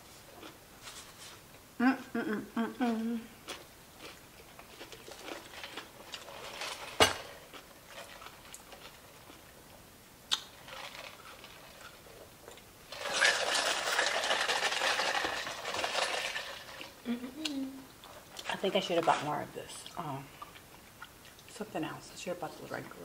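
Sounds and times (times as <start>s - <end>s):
rattling slurp through a straw: 12.9s - 16.9s.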